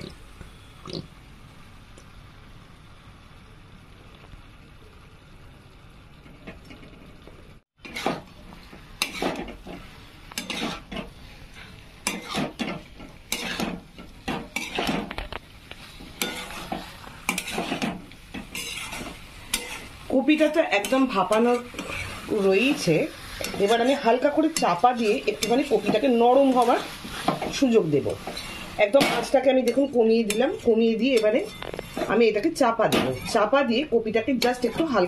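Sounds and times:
low sizzle: 0:00.0 - 0:35.0
metal spatula scraping a pan: 0:07.8 - 0:33.6, 0:34.3 - 0:35.0.

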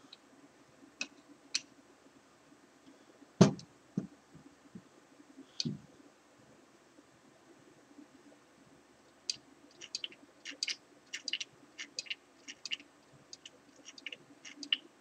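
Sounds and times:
dull thump on bench: 0:03.4 - 0:03.6.

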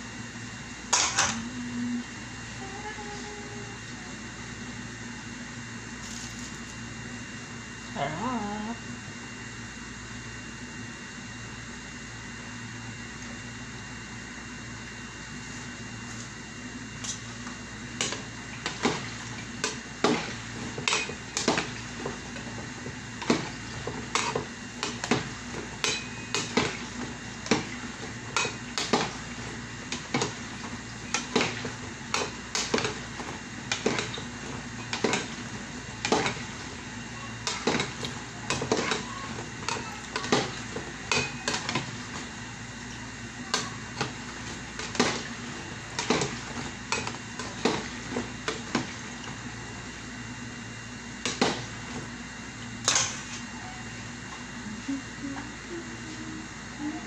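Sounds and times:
low hum: 0:00.8 - 0:04.7.

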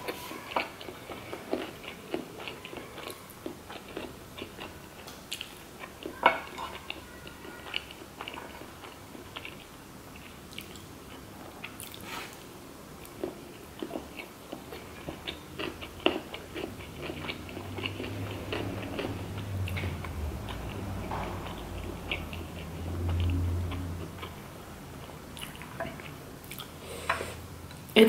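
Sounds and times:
close chewing and biting: 0:00.0 - 0:26.8
steady low hum: 0:12.4 - 0:28.0.

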